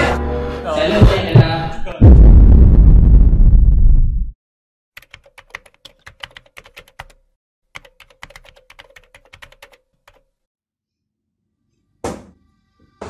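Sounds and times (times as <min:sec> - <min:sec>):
loud low rumble: 0:02.0 - 0:04.4
computer keyboard typing: 0:05.0 - 0:07.2, 0:07.8 - 0:10.3.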